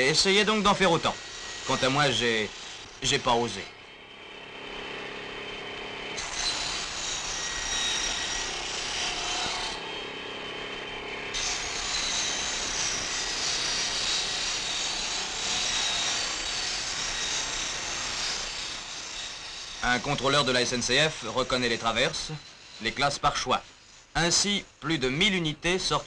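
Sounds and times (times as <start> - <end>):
saw rasping through timber: 0.0 - 3.7, 6.0 - 26.0.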